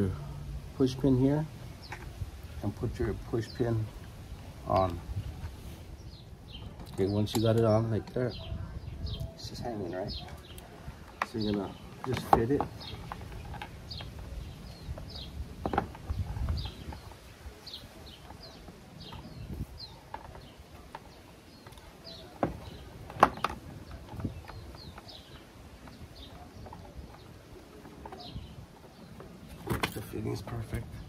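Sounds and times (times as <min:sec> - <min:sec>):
bird chirping: 0:00.0 - 0:31.0
plastic knocks and clicks: 0:11.1 - 0:14.3, 0:14.9 - 0:17.1, 0:20.1 - 0:26.0.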